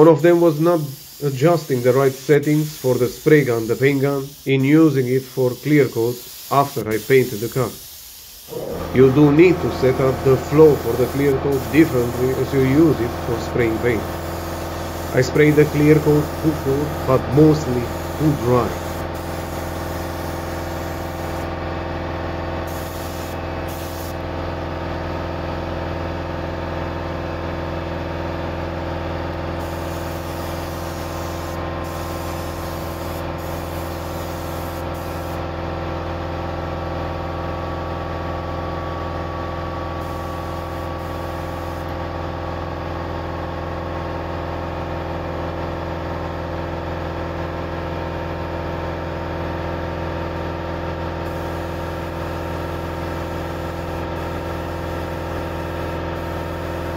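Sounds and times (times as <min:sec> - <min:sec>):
spray gun air hiss: 0:00.0 - 0:21.6, 0:22.6 - 0:24.3, 0:29.5 - 0:35.5, 0:39.9 - 0:42.0, 0:51.2 - 0:56.9
motor humming: 0:08.5 - 0:21.6.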